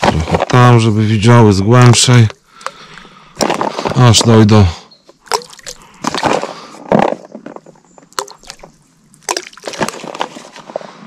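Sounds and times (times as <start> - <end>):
water splashes: 5.2 - 6.4, 8.2 - 10.4.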